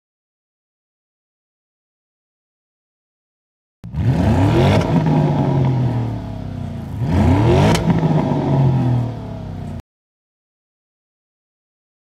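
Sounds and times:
car engine revving: 3.8 - 9.8
exhaust crack: 3.8 - 9.8.

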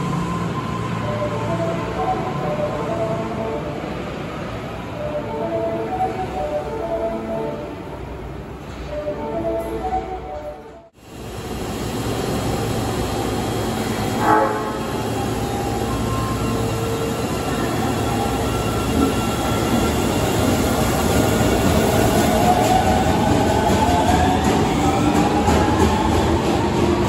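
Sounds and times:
subway train motor whine: 11.0 - 27.0
short electronic train horn: 14.2 - 15.0.

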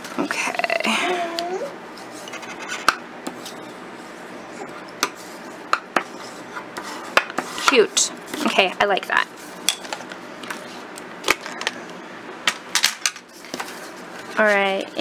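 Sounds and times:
paper rustling and scraping: 13.3 - 14.7.

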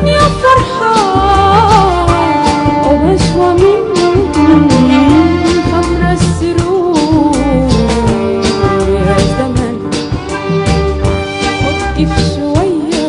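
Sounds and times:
woman singing: 0.0 - 10.2, 11.4 - 13.0
percussion beat and bass: 0.0 - 13.0
band playing wavering melody: 2.2 - 12.9.

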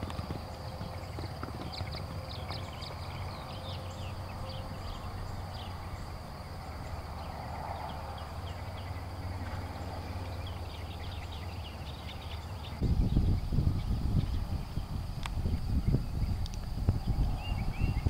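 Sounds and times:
horse hoofbeats on sand: 0.0 - 3.4
steady low rumble: 0.0 - 18.0.

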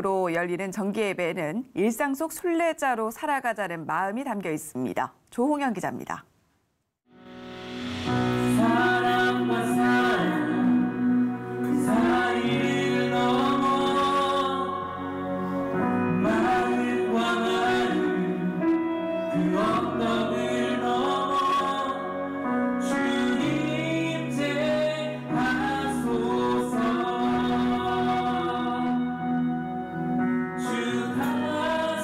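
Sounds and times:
instrumental backing of held chords: 7.1 - 32.0
man and woman singing: 8.4 - 15.4, 16.0 - 29.2, 30.6 - 32.0.

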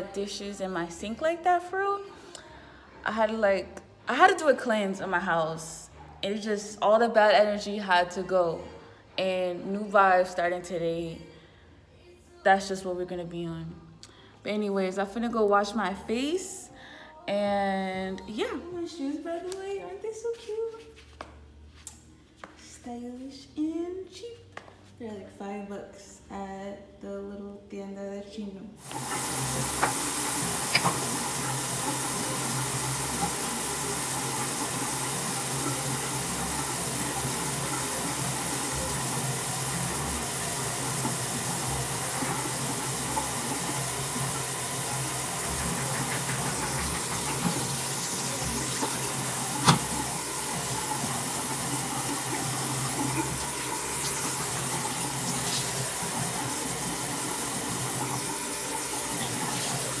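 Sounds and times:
bathroom tap running: 28.8 - 60.0.

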